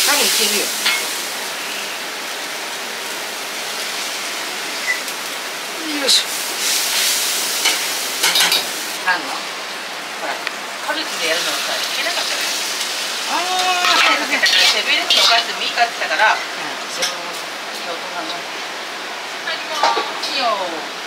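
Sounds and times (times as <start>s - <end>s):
food sizzling in hot oil: 0.0s - 21.0s
metal utensils clinking: 13.6s - 15.6s.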